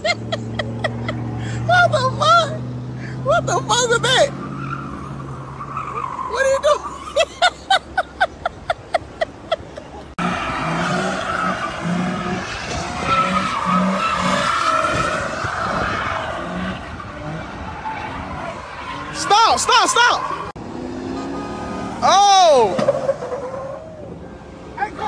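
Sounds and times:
car tyres squealing: 0.0s - 25.0s
car engine revving: 10.1s - 23.8s.

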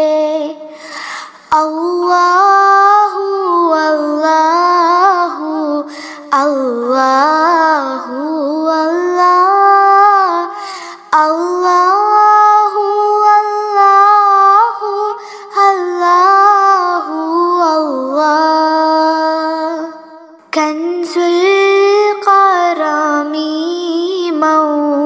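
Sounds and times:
person singing unaccompanied: 1.4s - 25.0s.

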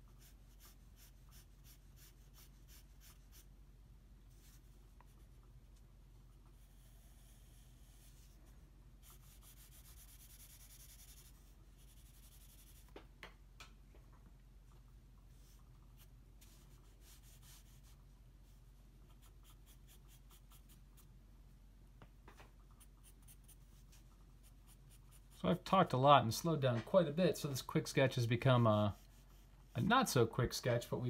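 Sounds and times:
pencil scratching on paper: 0.1s - 3.5s, 6.6s - 8.4s, 9.0s - 12.9s, 15.4s - 18.0s, 19.1s - 21.1s, 22.8s - 25.5s, 28.4s - 29.9s.

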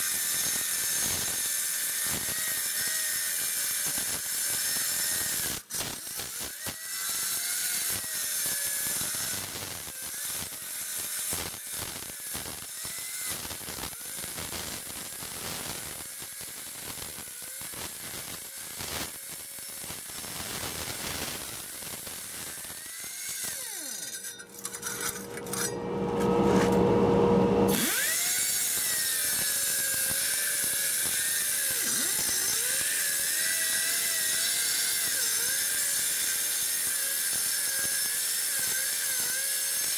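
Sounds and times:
wire brush scratching concrete: 20.2s - 26.8s
motor whirring: 22.2s - 27.0s, 27.7s - 35.5s.

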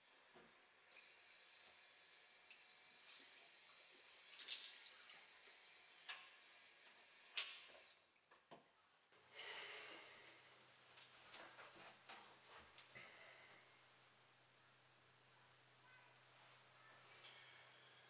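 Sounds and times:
tap water running into sink: 1.0s - 7.9s
small splashes and clinks: 2.5s - 5.3s.

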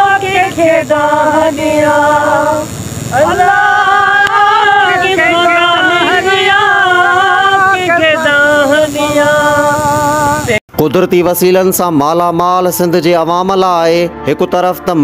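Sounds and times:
person singing slow melody: 0.0s - 10.6s.

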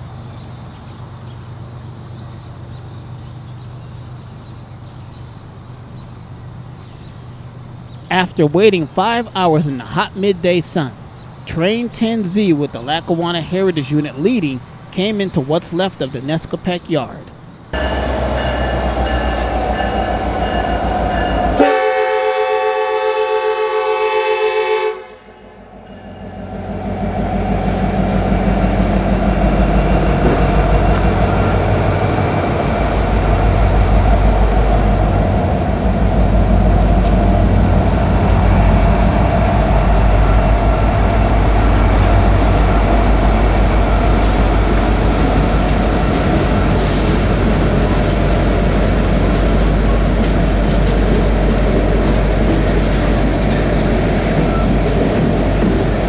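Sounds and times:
diesel locomotive engines: 0.0s - 56.0s
train wheels rumbling on rails: 17.7s - 23.8s, 25.9s - 56.0s
crossing bell ringing: 17.8s - 22.8s, 25.8s - 27.2s
locomotive air horn: 17.8s - 25.5s.

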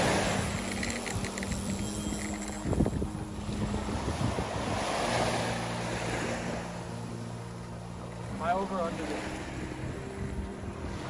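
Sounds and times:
wind buffeting the microphone: 0.0s - 5.4s, 9.7s - 11.0s
breaking surf: 0.0s - 7.0s.

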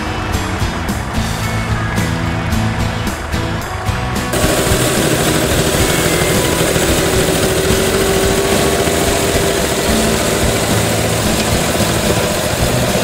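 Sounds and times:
tractor engine running: 0.4s - 13.0s.

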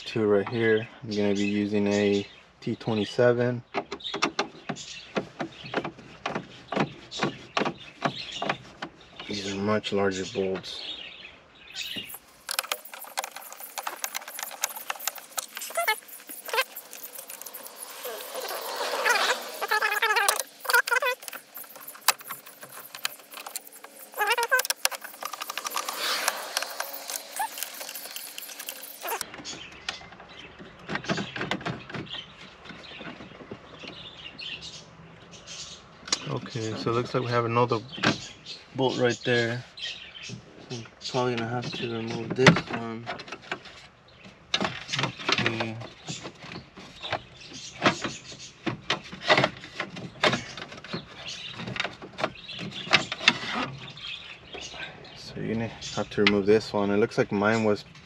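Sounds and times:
warbling squeak: 11.8s - 29.2s
hand tools clicking and rattling: 11.8s - 29.3s.

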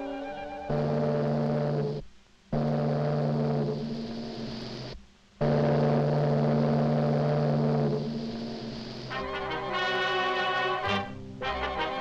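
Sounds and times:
steam whistle blowing: 9.1s - 12.0s.

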